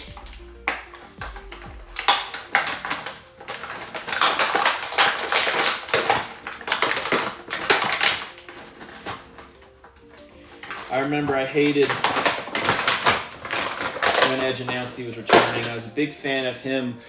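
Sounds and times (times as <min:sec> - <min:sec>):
plastic packaging crackling: 0:00.0 - 0:16.1.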